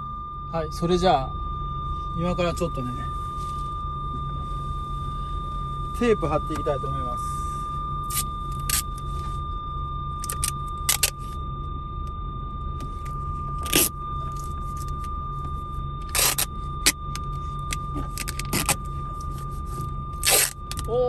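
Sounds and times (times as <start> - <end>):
high-pitched warning beep: 0.0 - 21.0
low steady hum: 0.0 - 21.0.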